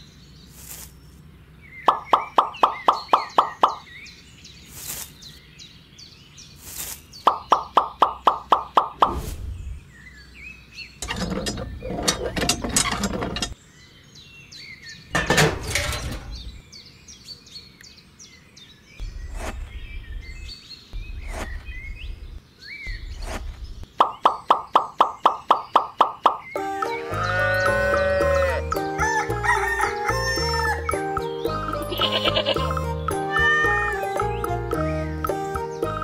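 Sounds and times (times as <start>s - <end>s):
small birds chirping: 0.0s - 36.0s
rustling handling noise: 4.7s - 5.4s.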